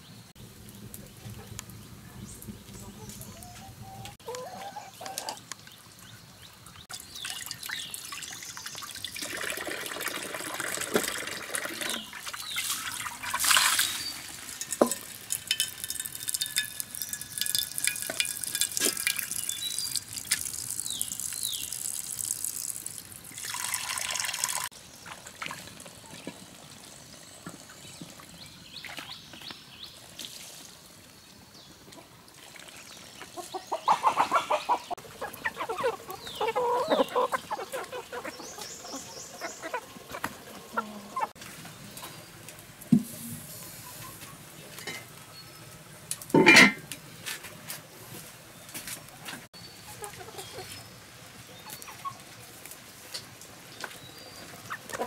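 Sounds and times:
water splashing and trickling: 0:04.6 - 0:43.6.

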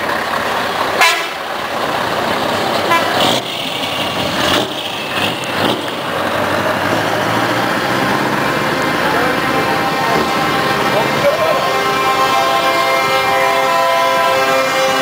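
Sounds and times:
truck engine running steadily: 0:00.0 - 0:15.0
truck horn toot: 0:01.0 - 0:01.5, 0:02.8 - 0:03.5, 0:09.3 - 0:15.0.

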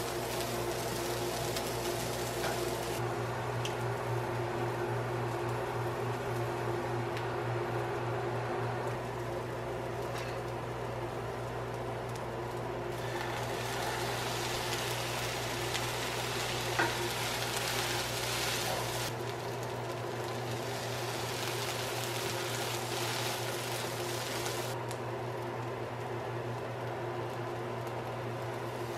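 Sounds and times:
food sizzling in a frying pan: 0:00.0 - 0:03.0, 0:13.0 - 0:24.8
steady low hum: 0:00.0 - 0:28.9.

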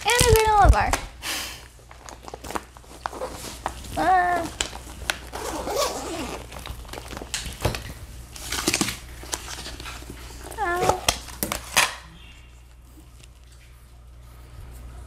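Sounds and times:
fabric rustling: 0:02.8 - 0:06.6
zipper being pulled open: 0:05.3 - 0:06.6.

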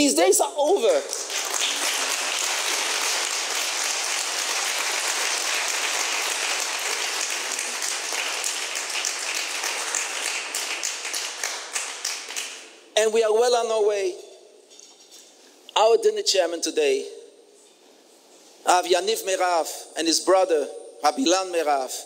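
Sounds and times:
audience applauding: 0:01.0 - 0:12.7.

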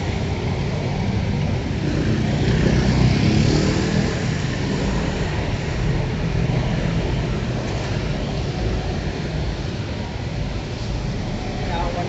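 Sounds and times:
traffic and tyres on wet road: 0:00.0 - 0:12.0
motor scooter passing: 0:01.4 - 0:08.2.

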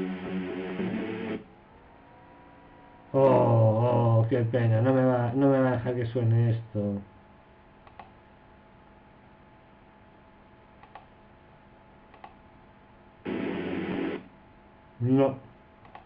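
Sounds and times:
mouse clicks: 0:07.8 - 0:08.2, 0:10.8 - 0:11.1, 0:12.1 - 0:12.4.

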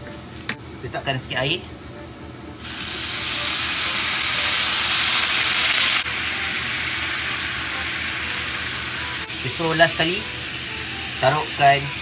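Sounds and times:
water hissing in hot pan: 0:02.6 - 0:12.0.

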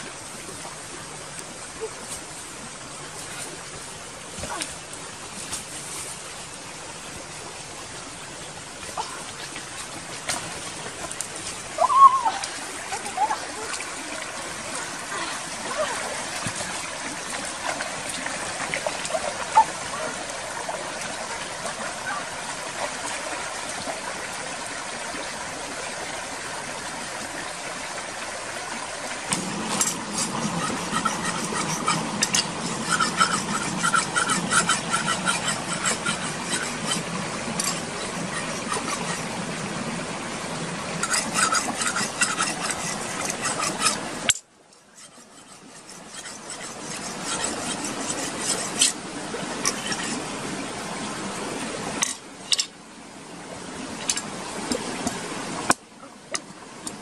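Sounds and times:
stream water over rocks: 0:00.0 - 0:57.0
scraping coconuts: 0:29.4 - 0:39.3, 0:41.0 - 0:44.0, 0:45.0 - 0:49.0.

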